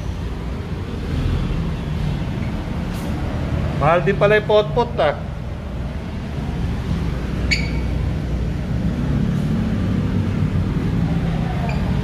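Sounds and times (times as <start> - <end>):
vehicle engines rumbling: 0.0 - 12.0
brief high squeak: 7.5 - 8.0.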